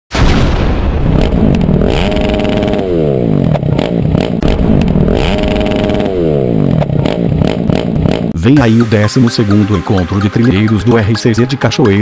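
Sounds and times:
motorcycle engine revving: 1.1s - 8.4s
sudden rush of noise: 4.4s - 7.4s.

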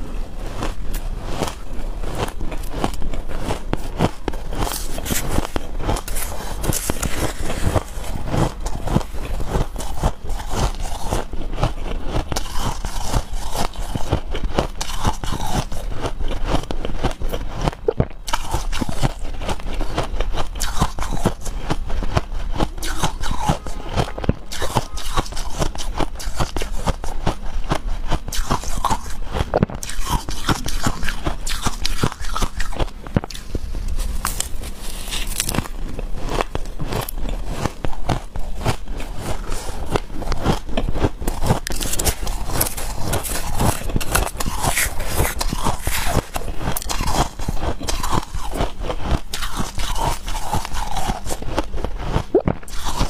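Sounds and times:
wooden spoon scraping ice: 0.4s - 53.0s
shaved ice crunching: 0.6s - 17.7s, 29.8s - 53.0s.

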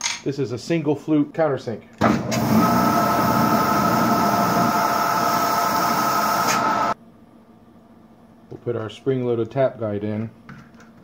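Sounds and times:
drill press whine: 2.0s - 7.0s.

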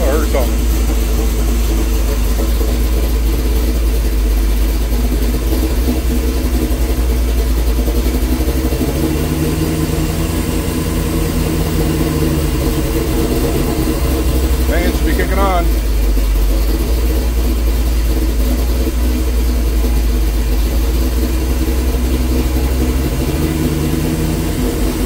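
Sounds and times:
steady hum: 0.0s - 8.8s
engine idling: 0.0s - 25.0s.

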